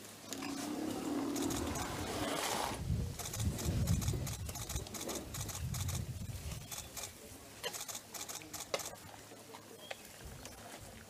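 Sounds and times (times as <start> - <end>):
elephant calves rumbling: 0.3 - 2.8
rapid clicks and patter: 3.2 - 9.1.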